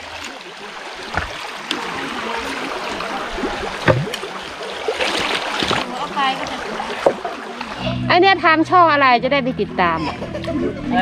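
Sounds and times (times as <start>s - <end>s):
stream water rushing: 0.0s - 8.3s
short thuds: 1.1s - 1.4s.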